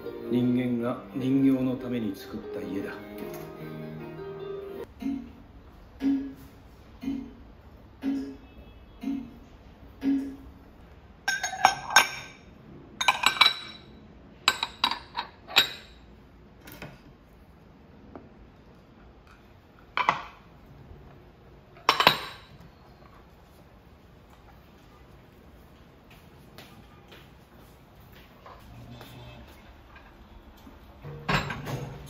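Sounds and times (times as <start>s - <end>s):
bowls clattering: 11.2s - 16.1s, 21.7s - 23.2s, 31.0s - 32.0s
ceramic bowls clinking: 11.2s - 16.1s, 21.7s - 23.2s, 31.0s - 32.0s.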